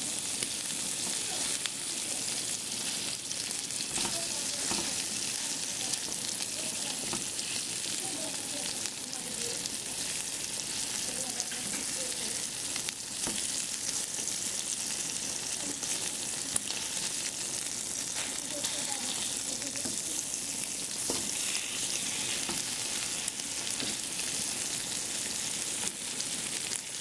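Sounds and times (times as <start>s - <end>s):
pork sizzling in a frying pan: 0.0s - 27.0s
spatula scraping a pan: 7.0s - 7.8s, 18.2s - 24.7s.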